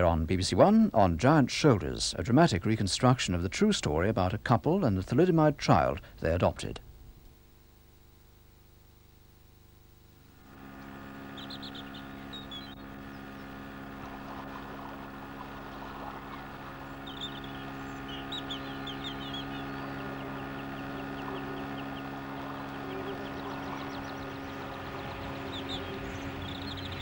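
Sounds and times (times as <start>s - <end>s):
low hum: 4.0s - 27.0s
small birds chirping: 10.3s - 27.0s.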